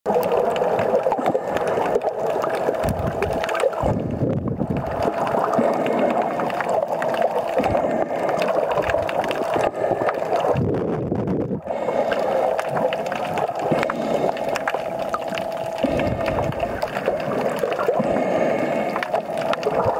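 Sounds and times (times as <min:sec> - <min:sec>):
underwater gurgling and swishing: 0:00.1 - 0:19.9
deep surging rumble: 0:02.8 - 0:05.2, 0:10.5 - 0:11.7.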